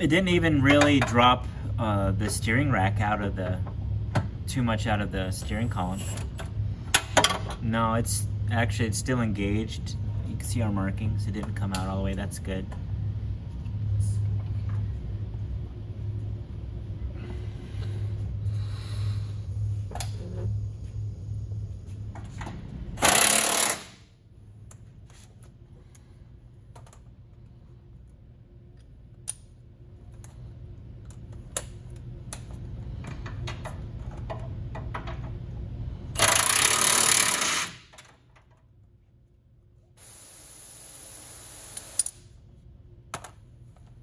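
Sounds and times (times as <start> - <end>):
impact wrench bursts: 23.0 - 24.1, 36.2 - 38.0.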